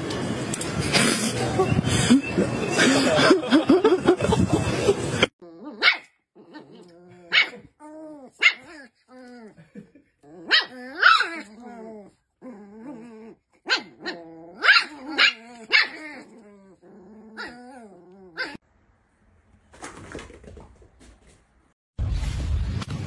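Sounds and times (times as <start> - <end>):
small dogs barking: 5.7 - 7.7, 8.3 - 8.9, 10.4 - 11.5, 13.6 - 16.4
dogs growling: 6.4 - 18.6.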